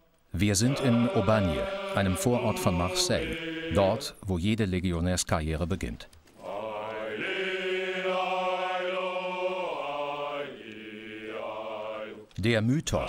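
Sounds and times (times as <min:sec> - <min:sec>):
men's chorus singing in unison: 0:00.4 - 0:04.2, 0:06.4 - 0:12.3.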